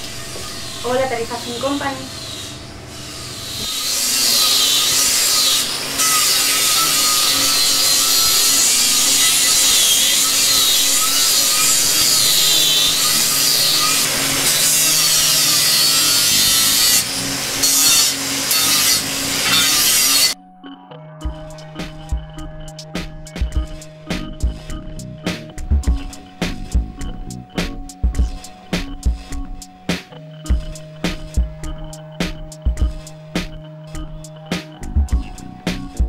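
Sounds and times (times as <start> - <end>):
electric grinder whining: 0.0 - 20.4.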